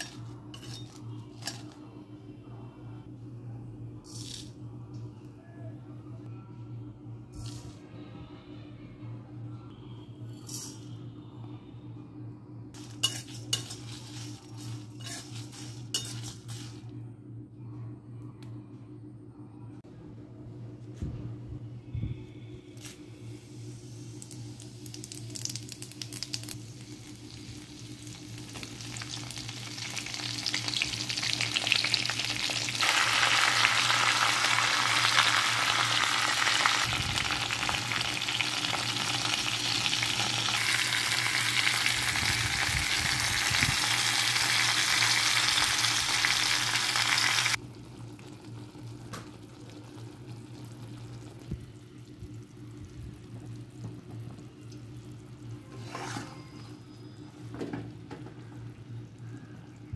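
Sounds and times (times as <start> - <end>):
steady low hum: 0.0 - 59.9
spices sizzling in hot oil: 12.8 - 16.8, 23.4 - 49.0.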